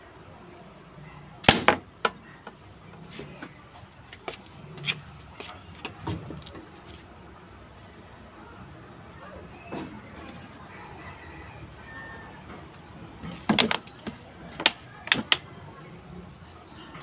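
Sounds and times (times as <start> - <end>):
arrow smacking plastic bottle: 1.4 - 1.9, 13.4 - 13.9.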